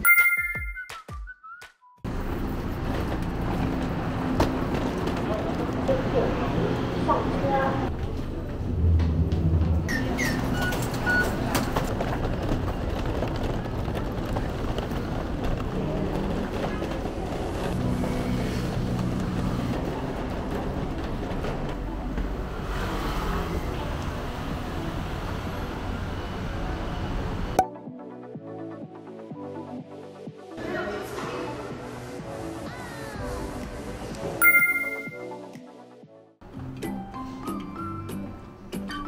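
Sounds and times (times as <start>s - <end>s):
short high beeps: 0.0s - 1.1s, 34.4s - 35.4s.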